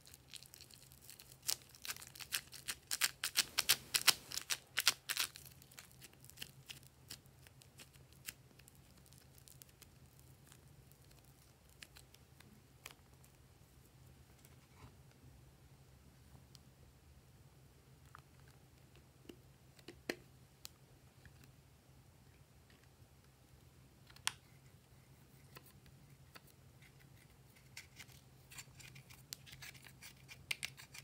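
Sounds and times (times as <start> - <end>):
clay crackling as it is stretched: 0.0 - 15.1, 25.2 - 31.0.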